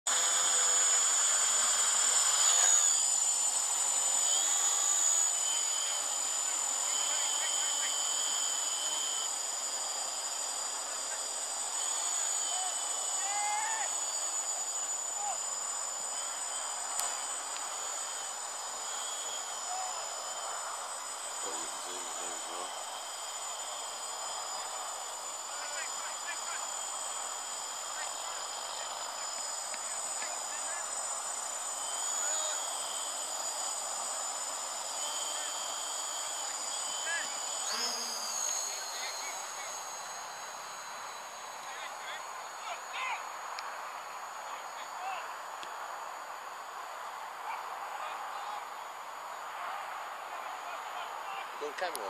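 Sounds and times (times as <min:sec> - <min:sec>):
drone propellers whirring: 0:00.1 - 0:52.0
quadcopter motors whining: 0:00.1 - 0:52.0
sharp click: 0:16.9 - 0:17.7.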